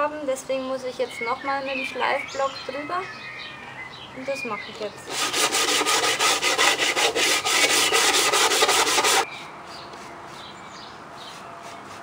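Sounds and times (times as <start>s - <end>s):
sandpaper rubbing on wood: 5.1s - 9.3s, 11.2s - 12.0s.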